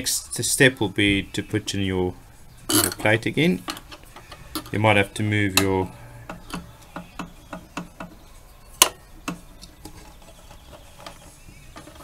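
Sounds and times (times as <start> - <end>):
metal clicks and taps: 5.6 - 8.2.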